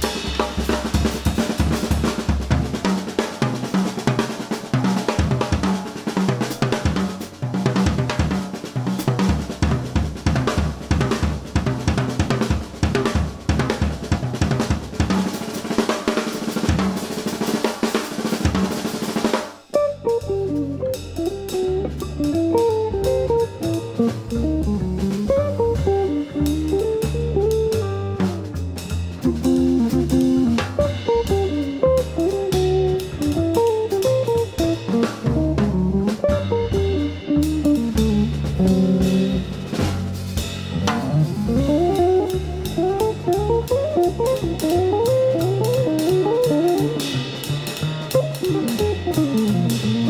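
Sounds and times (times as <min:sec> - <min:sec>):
upright double bass: 0:00.0 - 0:15.5, 0:19.8 - 0:50.0
drum kit solo: 0:00.0 - 0:50.0.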